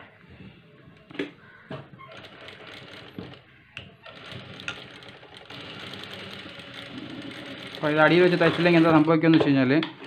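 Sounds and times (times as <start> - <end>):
sewing machine stitching: 2.1 - 3.4, 4.0 - 9.1.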